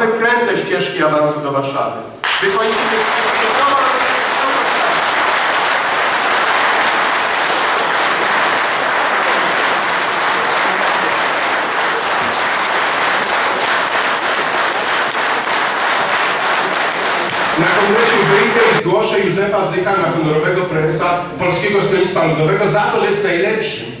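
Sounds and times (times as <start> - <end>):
audience applauding: 2.2 - 18.8.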